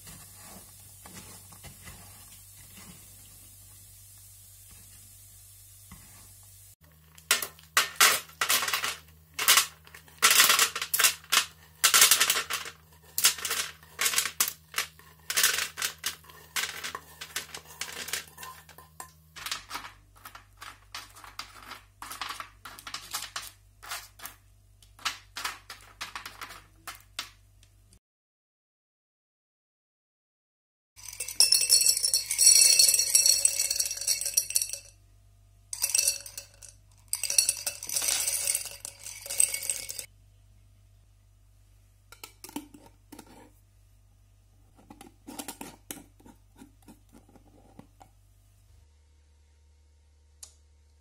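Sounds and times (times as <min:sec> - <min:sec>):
candied nuts rattling onto tray: 0:07.3 - 0:24.4, 0:25.0 - 0:27.4, 0:31.0 - 0:34.9, 0:35.8 - 0:40.1.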